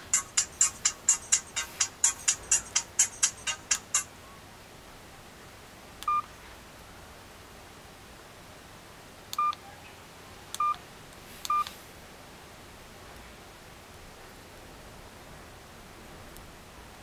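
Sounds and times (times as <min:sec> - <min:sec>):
phone key-press beeps: 0:09.4 - 0:09.6, 0:11.5 - 0:11.7.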